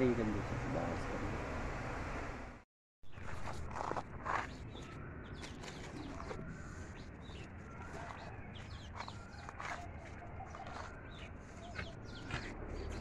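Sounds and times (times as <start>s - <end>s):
bird chirps and calls: 4.3s - 13.0s.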